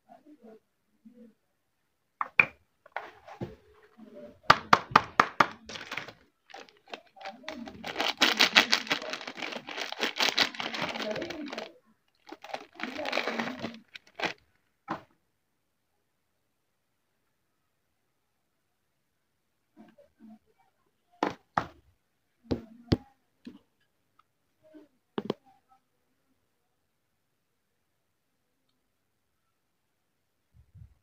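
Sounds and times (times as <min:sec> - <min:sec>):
plastic wrapper tapping and clicking: 0:04.5 - 0:14.4
plastic wrapper crinkling: 0:05.4 - 0:14.5.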